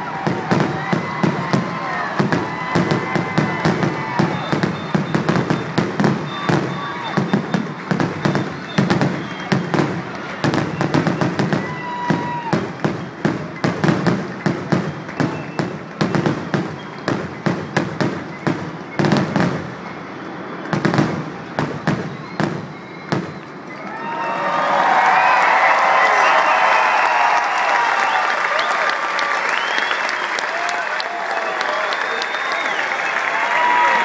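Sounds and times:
fireworks bangs and crackling: 0:00.0 - 0:24.2
firework whistle: 0:00.0 - 0:24.3, 0:25.1 - 0:34.0.

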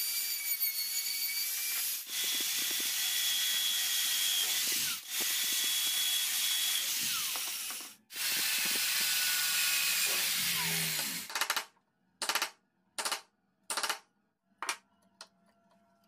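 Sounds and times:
power tool whining: 0:00.0 - 0:11.3.

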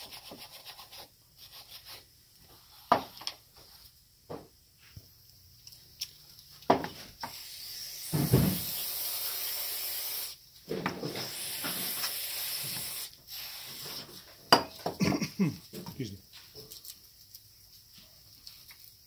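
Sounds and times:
aerosol spray hissing: 0:07.2 - 0:10.4, 0:11.1 - 0:14.1.

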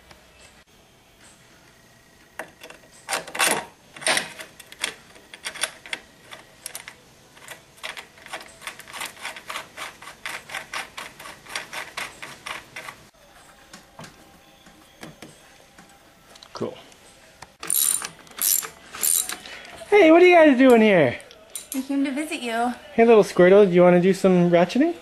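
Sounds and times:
ratcheting wrench clicking: 0:17.6 - 0:19.4.

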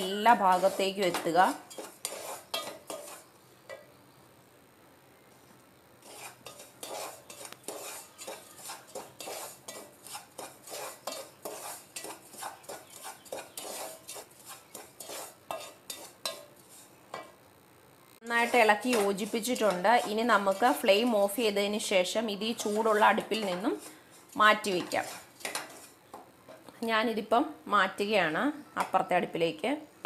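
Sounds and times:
spatula scraping flour in pot: 0:00.0 - 0:03.3, 0:06.0 - 0:17.0, 0:18.3 - 0:26.7.

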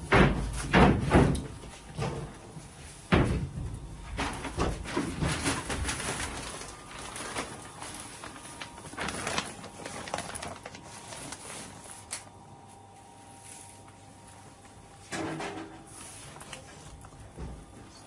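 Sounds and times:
curtain rustling: 0:04.9 - 0:12.2.

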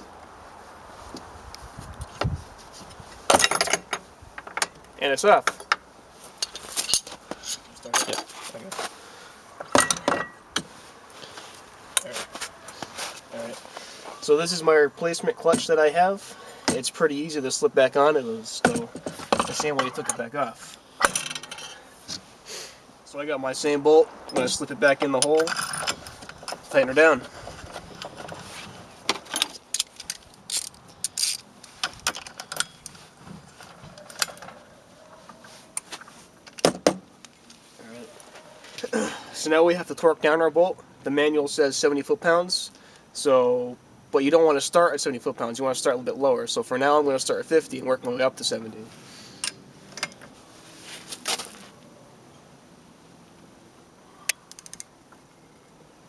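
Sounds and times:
tool clattering: 0:18.6 - 0:20.3.

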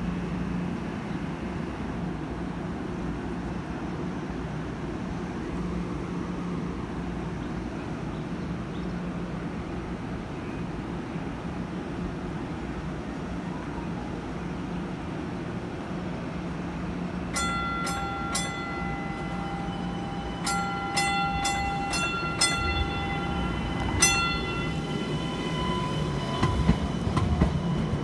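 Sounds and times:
rail car hum and rumble: 0:00.0 - 0:28.0
light rail warning bell ringing: 0:17.2 - 0:28.0.

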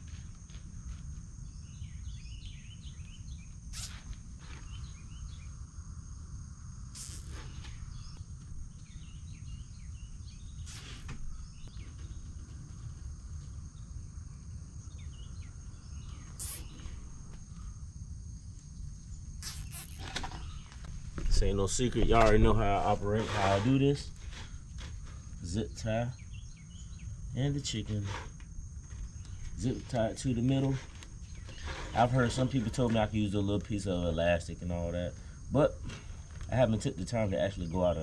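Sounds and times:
high-pitched insect trill: 0:00.0 - 0:38.0
bird chirps: 0:01.4 - 0:05.6, 0:06.9 - 0:13.0, 0:14.8 - 0:17.6, 0:19.4 - 0:21.8, 0:26.0 - 0:27.5.

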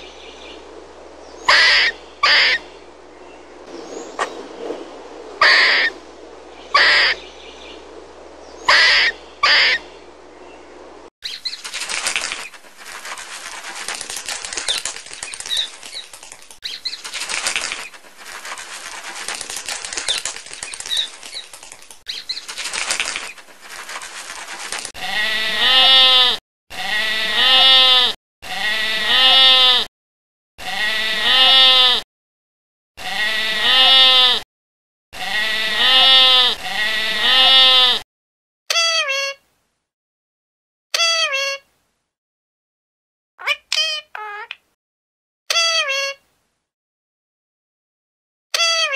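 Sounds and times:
squirrel calls: 0:01.4 - 0:02.7, 0:05.4 - 0:06.0, 0:06.7 - 0:07.2, 0:08.6 - 0:09.9, 0:43.4 - 0:44.6
crackly noise: 0:02.1 - 0:08.5, 0:09.3 - 0:25.9
sheep bleating: 0:25.0 - 0:29.9, 0:30.6 - 0:32.0, 0:33.0 - 0:34.4, 0:35.2 - 0:38.0.

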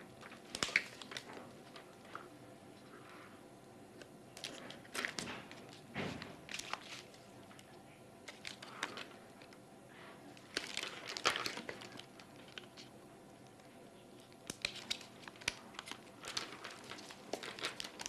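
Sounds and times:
plastic clicks and crinkling: 0:04.0 - 0:09.6, 0:10.4 - 0:18.0.

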